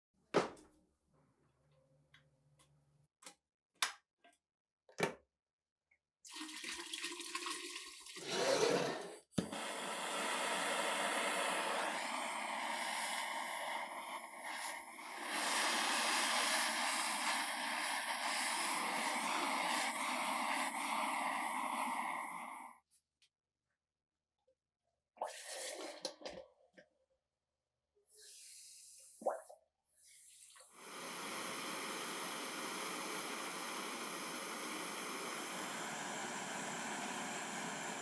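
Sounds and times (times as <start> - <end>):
gas torch hissing: 8.3 - 22.8, 30.0 - 38.0.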